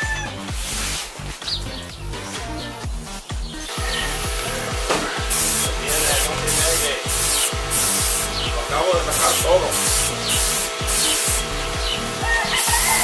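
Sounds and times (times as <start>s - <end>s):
background music with beat: 0.0s - 13.0s
spray gun hissing bursts: 0.4s - 1.3s, 3.7s - 13.0s.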